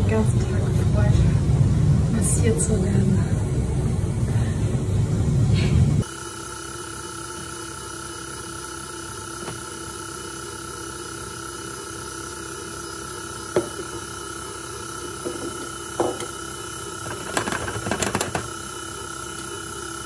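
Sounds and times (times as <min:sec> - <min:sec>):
stand mixer motor whine: 0:06.0 - 0:20.0.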